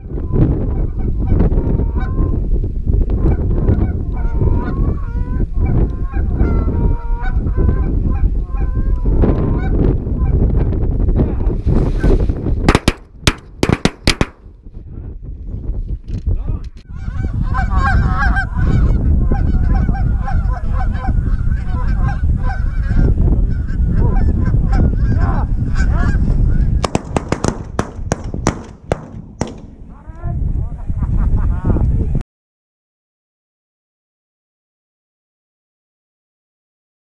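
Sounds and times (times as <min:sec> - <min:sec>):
wind rumbling on microphone: 0:00.0 - 0:32.2
shotgun shots: 0:12.7 - 0:14.5, 0:26.8 - 0:30.1
sharp cracks: 0:12.7 - 0:14.6, 0:26.8 - 0:30.2.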